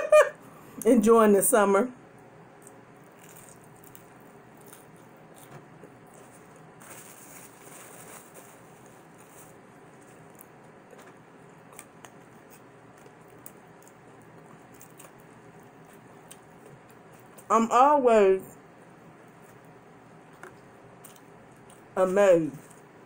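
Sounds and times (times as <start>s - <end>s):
quiet chewing: 2.5s - 7.0s, 8.5s - 17.5s, 19.2s - 22.0s
paper napkin rustle: 6.2s - 10.3s.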